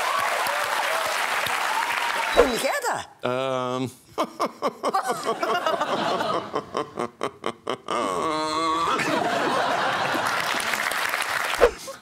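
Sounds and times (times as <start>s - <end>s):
studio audience laughter: 4.2s - 7.9s, 9.0s - 11.0s
people laughing: 4.2s - 10.9s.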